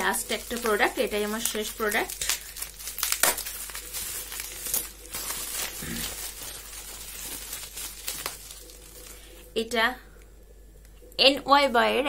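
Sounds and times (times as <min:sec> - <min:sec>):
packaging crinkling and tearing: 0:00.0 - 0:09.5.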